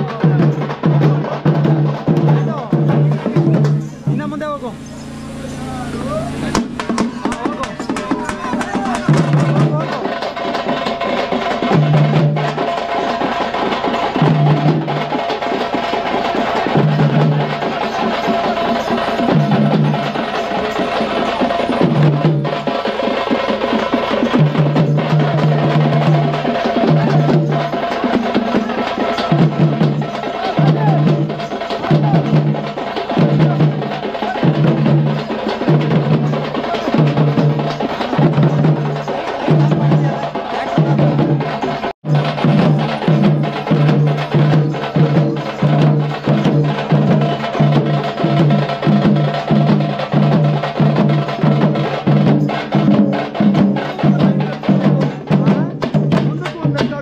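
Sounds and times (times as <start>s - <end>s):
cymbal and wooden clatter: 0.0s - 57.0s
drums beating: 0.0s - 57.0s
steady held tone: 2.9s - 9.7s.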